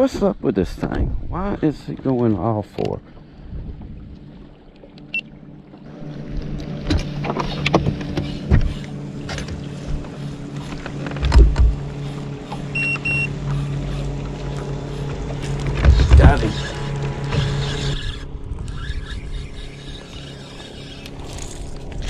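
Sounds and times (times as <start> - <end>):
trolling motor humming: 1.9 - 22.0
short high beeps: 12.7 - 13.3.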